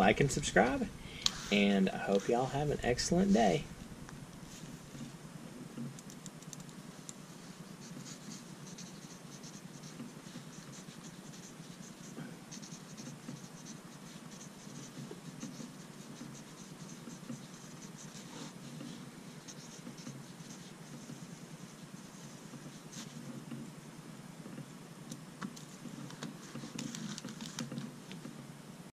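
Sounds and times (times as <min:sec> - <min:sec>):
pencil scratching on paper: 0:07.3 - 0:23.4.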